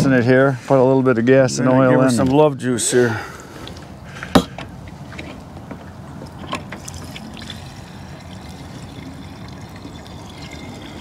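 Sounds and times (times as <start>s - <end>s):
fuel trickling into a tank: 6.2s - 11.0s.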